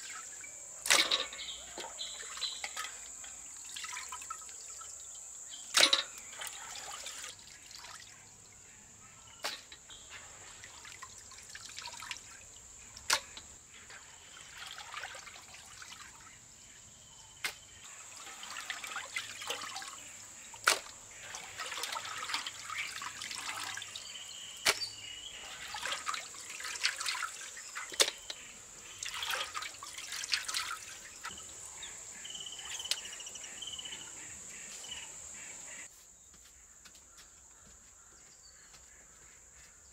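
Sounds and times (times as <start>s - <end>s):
water dripping: 0.0s - 8.6s, 9.4s - 16.3s, 17.9s - 33.5s
water sloshing and splashing in pot: 0.0s - 16.6s, 17.8s - 33.2s.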